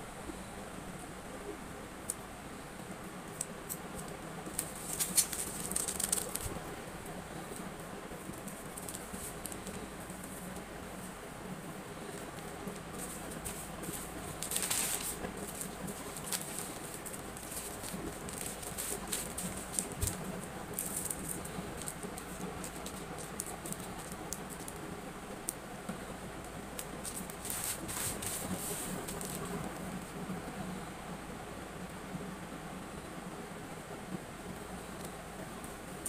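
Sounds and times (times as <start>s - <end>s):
low background hum: 0.0s - 36.0s
packing materials rustling: 3.7s - 6.7s, 7.4s - 10.6s, 12.0s - 24.8s, 26.8s - 29.7s.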